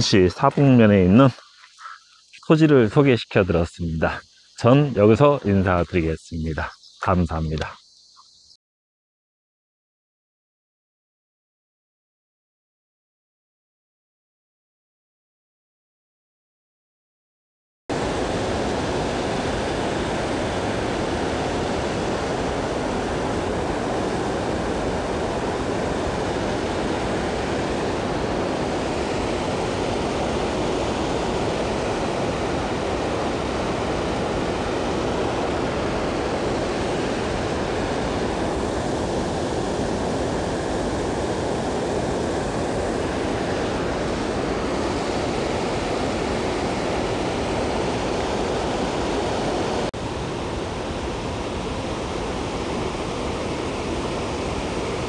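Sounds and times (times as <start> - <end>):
mountain stream rushing over rocks: 17.9 - 55.0.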